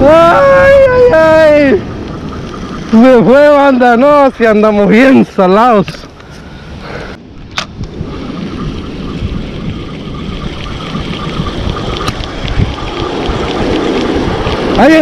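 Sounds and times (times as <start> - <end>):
wind on microphone: 0.0 - 4.8, 5.6 - 15.0
fishing reel ticking: 8.2 - 14.8.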